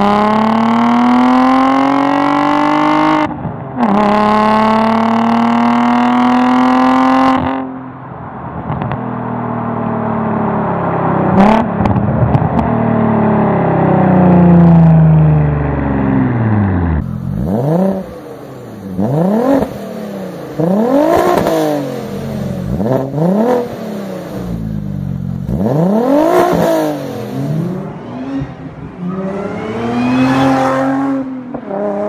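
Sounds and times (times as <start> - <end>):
car engine revving in blips: 16.1 - 32.0.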